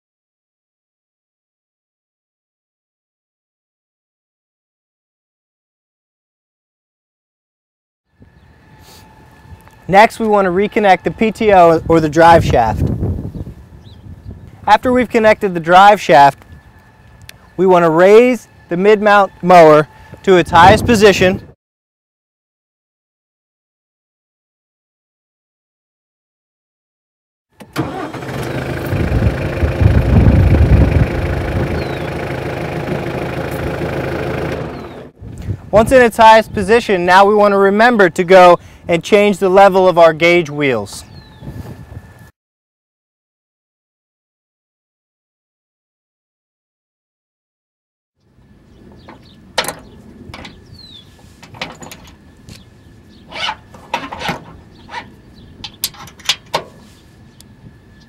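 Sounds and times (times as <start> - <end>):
tractor engine running: 27.6 - 35.2, 48.7 - 52.6, 53.4 - 57.1
metal clinks from mower wheel: 51.4 - 52.2, 53.3 - 56.9.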